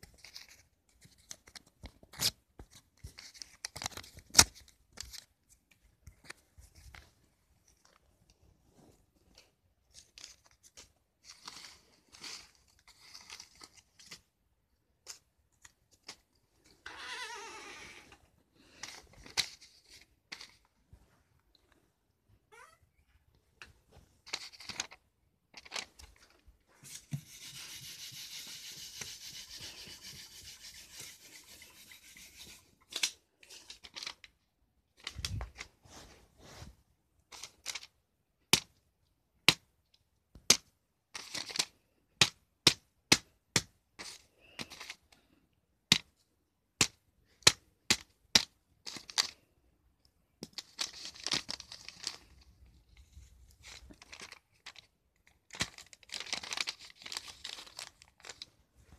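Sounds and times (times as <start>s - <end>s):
paper tearing and rasping: 27.2s - 32.6s.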